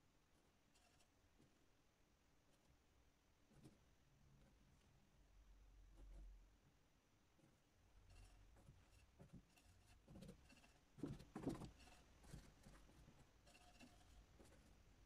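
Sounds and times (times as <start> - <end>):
soft bumps: 8.5 - 13.3.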